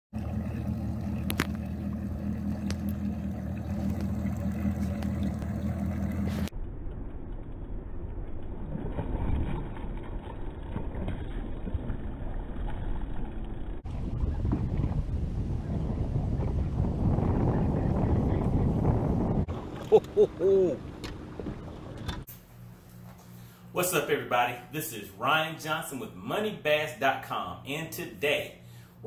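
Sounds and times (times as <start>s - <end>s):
outboard motor idling: 0.1s - 6.5s, 18.0s - 22.3s
wind buffeting microphone: 13.8s - 22.3s.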